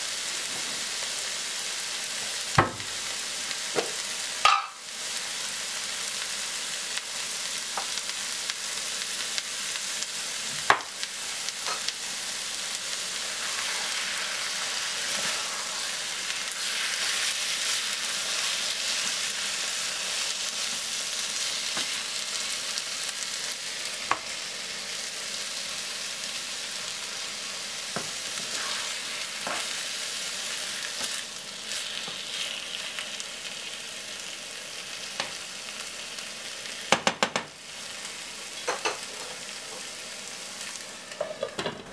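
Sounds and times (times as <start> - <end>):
food sizzling in a frying pan: 0.0 - 41.9.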